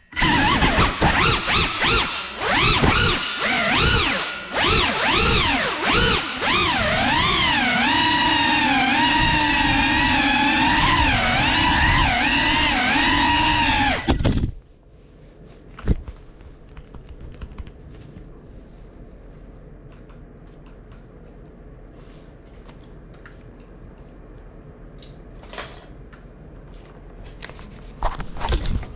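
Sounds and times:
low room hum: 0:00.0 - 0:28.9
quadcopter motors whining: 0:00.1 - 0:14.4.

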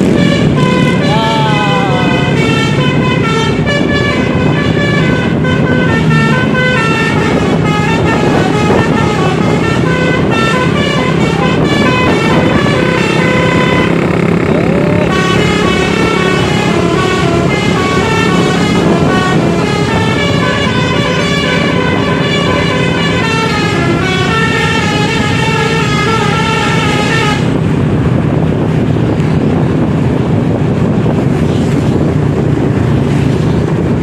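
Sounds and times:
multi-tone musical air horn: 0:00.0 - 0:14.1, 0:14.9 - 0:27.6
engine and road noise: 0:00.0 - 0:34.0.

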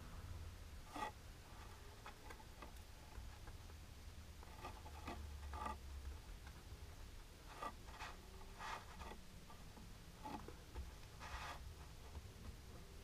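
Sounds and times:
low steady hum: 0:00.0 - 0:13.0
fingernails scratching on leather: 0:07.5 - 0:09.2.

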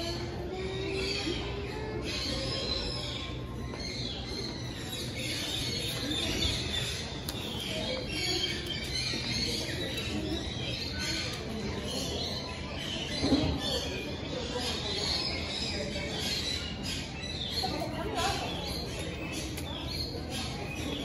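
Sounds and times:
murmur of people: 0:00.0 - 0:21.0.

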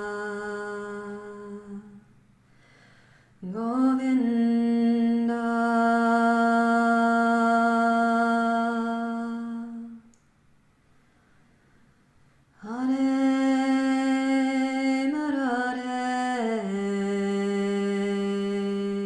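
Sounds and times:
woman singing a devotional chant: 0:00.0 - 0:02.1, 0:03.4 - 0:10.1, 0:12.6 - 0:19.0.

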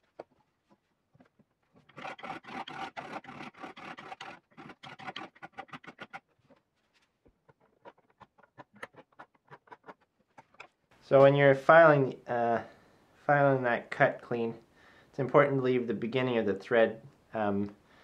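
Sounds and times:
hand file rasping metal: 0:01.8 - 0:06.3.

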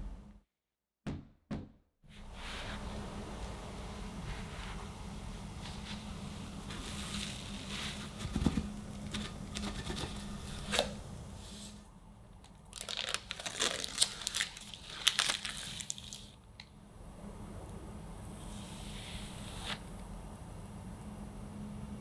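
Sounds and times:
parchment paper crinkling and tearing: 0:12.7 - 0:16.4.

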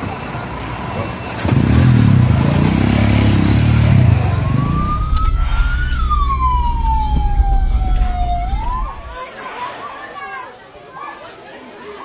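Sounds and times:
heavy vehicle engine drone: 0:00.0 - 0:09.2
emergency siren wailing: 0:03.3 - 0:09.2.

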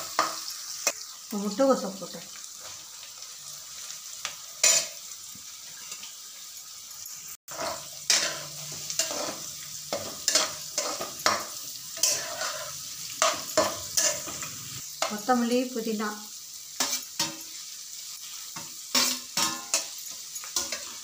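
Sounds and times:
vegetables sizzling in oil: 0:00.0 - 0:21.0
metal spatula scraping pan: 0:07.5 - 0:15.2, 0:16.8 - 0:21.0.

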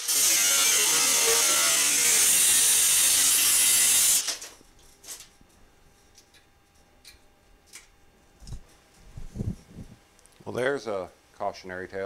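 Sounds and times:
angle grinder cutting sheet steel: 0:00.0 - 0:04.4.

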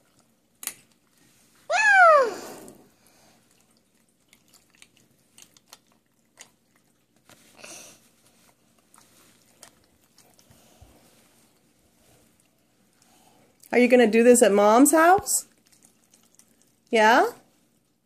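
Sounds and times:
short high cry: 0:01.7 - 0:02.6
hands squelching slime: 0:03.4 - 0:13.8.

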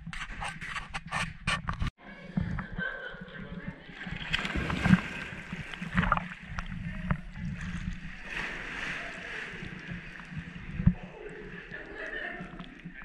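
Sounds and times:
water splashing and sloshing: 0:00.0 - 0:13.0.

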